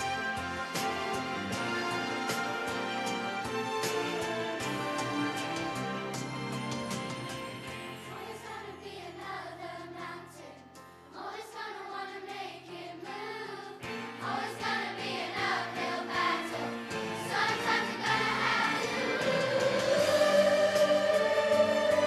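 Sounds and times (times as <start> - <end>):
children's choir singing: 0.0 - 2.9, 8.0 - 22.0
musical accompaniment: 0.0 - 10.0, 13.8 - 22.0.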